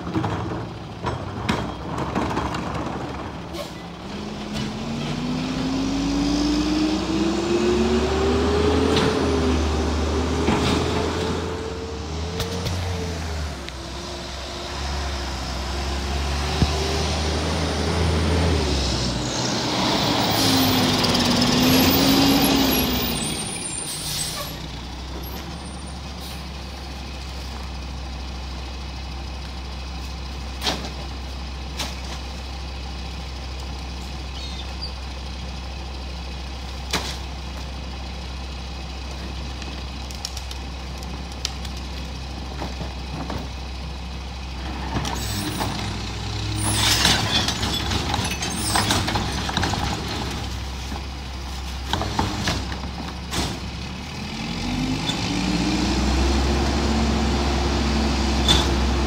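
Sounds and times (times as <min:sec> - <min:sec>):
garbage truck engine: 0:00.0 - 0:59.0
air brakes hissing: 0:23.2 - 0:24.6.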